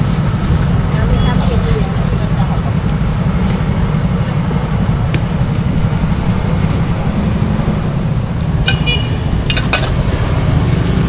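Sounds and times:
market bustle: 0.0s - 11.0s
motorbike traffic rumble: 0.0s - 11.0s
metallic clink: 8.6s - 10.0s.

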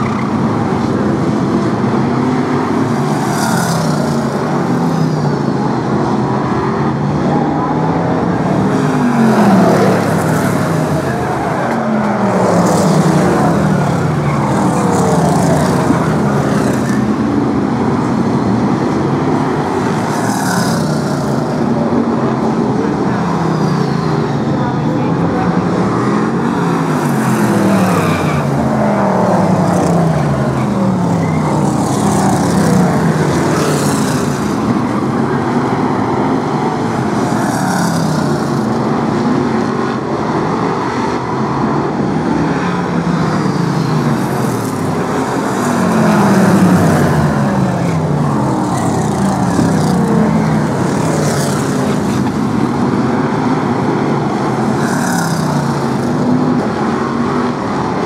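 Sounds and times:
racing car engines revving: 0.0s - 58.0s.

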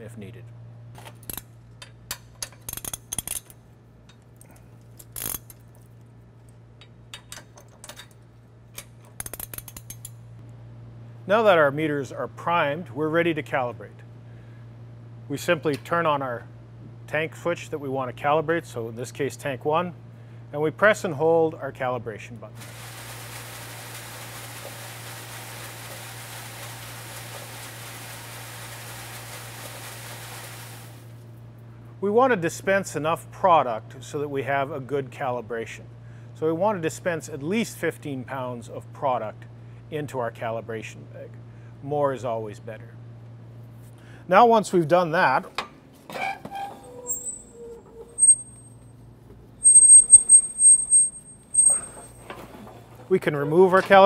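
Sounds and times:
steady low hum: 0.0s - 46.1s, 46.9s - 54.0s
hand tool cranking metal clicks: 2.1s - 3.6s, 5.0s - 5.6s, 8.8s - 10.1s.

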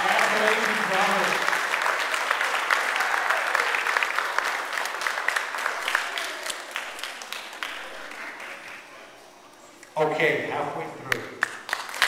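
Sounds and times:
audience applauding: 0.0s - 9.0s, 11.4s - 12.0s.

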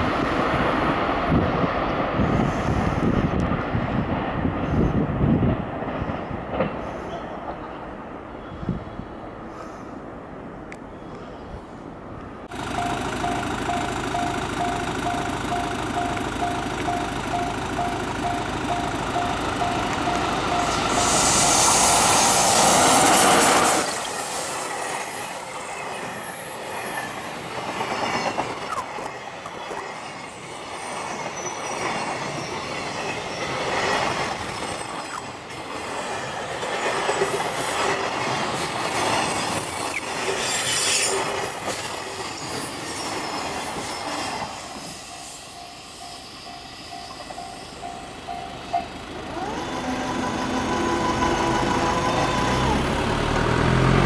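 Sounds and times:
electric train running on rails: 0.0s - 54.0s
train wheel squeal: 6.0s - 7.8s, 18.7s - 52.9s.

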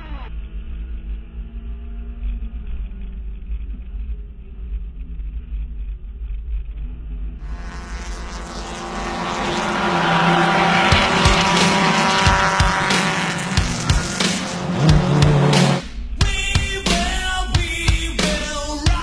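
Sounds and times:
race car engine at high revs: 7.4s - 16.0s
muffled music: 7.5s - 19.0s.

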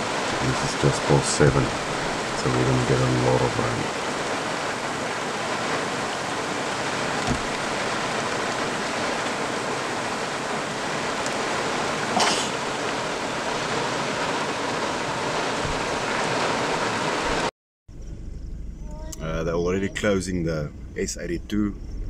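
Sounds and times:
heavy rain on vehicle: 0.0s - 17.5s.

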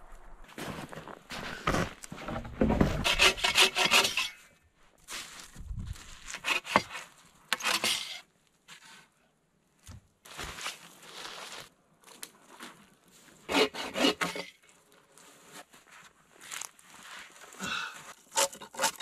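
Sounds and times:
hand saw cutting wood: 1.7s - 4.4s, 6.3s - 8.2s, 13.5s - 14.6s, 18.3s - 19.0s.

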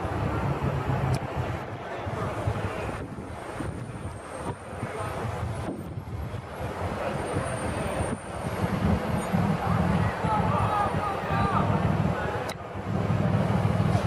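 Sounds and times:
city street traffic rumble: 0.0s - 14.0s.

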